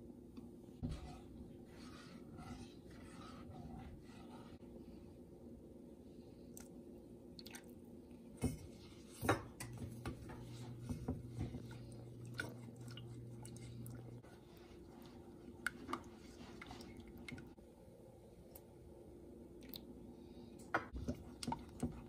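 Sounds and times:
low steady hum: 0:00.0 - 0:22.0
spatula stirring thick sauce: 0:00.8 - 0:04.6, 0:09.8 - 0:17.6, 0:20.9 - 0:22.0.

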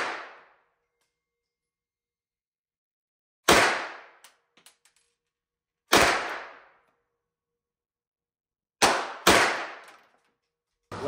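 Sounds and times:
handgun shots echoing: 0:08.8 - 0:10.1.

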